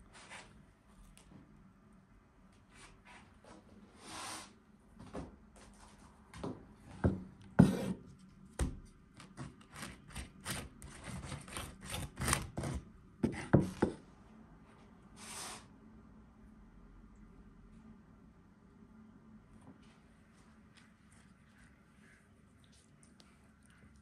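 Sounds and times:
wooden spoon scraping and tapping: 9.2 - 14.0.

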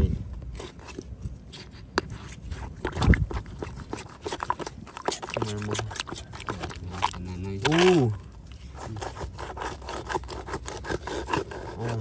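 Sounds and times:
mud clicks and small splashes: 2.0 - 11.5.

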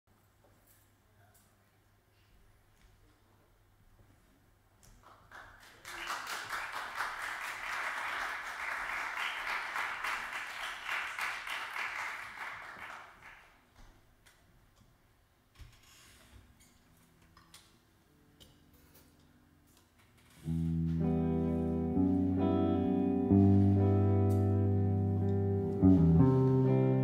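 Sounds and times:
audience applauding: 5.0 - 13.7.

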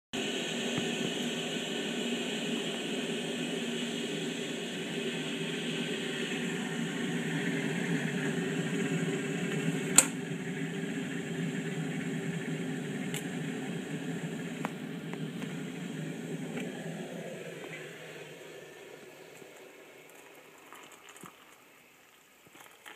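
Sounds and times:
kettle heating water: 0.2 - 22.9
kettle switch click: 9.9 - 10.2.

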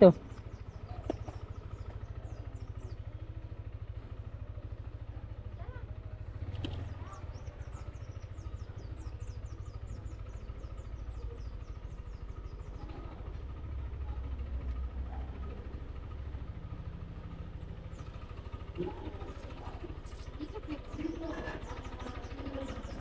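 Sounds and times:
scooter engine running: 0.0 - 23.0.

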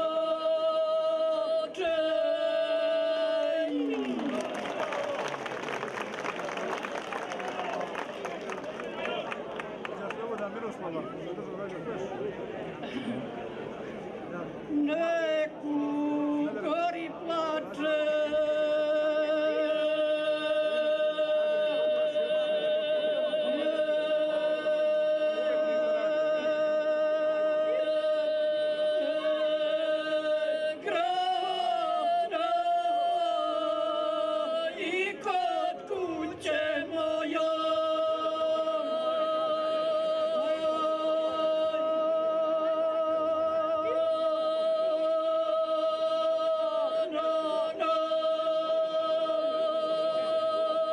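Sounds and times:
two women singing unaccompanied: 0.0 - 4.6, 14.8 - 50.9.

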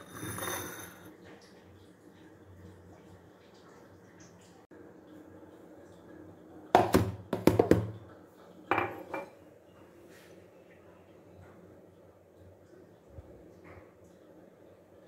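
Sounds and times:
bowl knocking on plastic container: 6.8 - 8.0.

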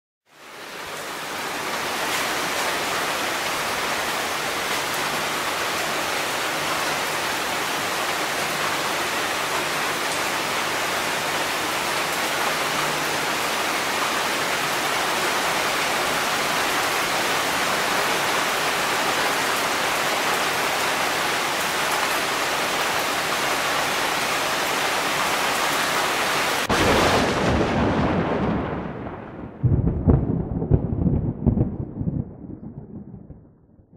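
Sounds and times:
rain falling on paving: 0.3 - 31.5
thunder clap and rumble: 26.7 - 33.9.

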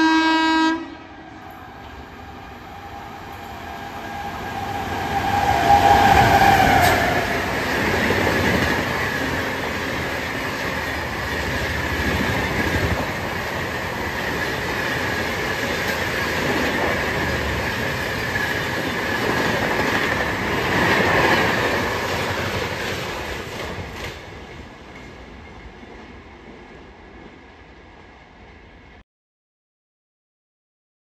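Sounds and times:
train wheels rushing on rails: 1.2 - 28.8
clickety-clack over rail joints: 5.2 - 28.1.

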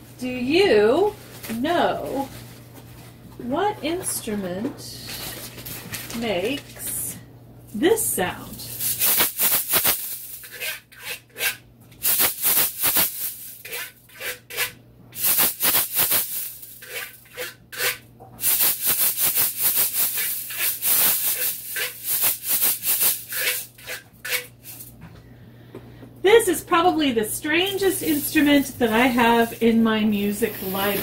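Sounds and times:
metal shaker-scraper rattling: 8.7 - 24.9, 27.6 - 31.0.

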